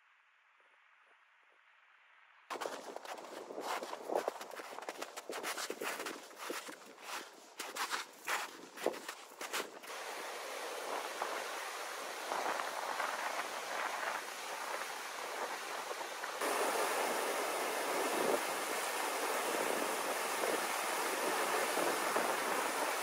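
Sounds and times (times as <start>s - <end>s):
whitewater rushing over rocks: 9.9s - 23.0s.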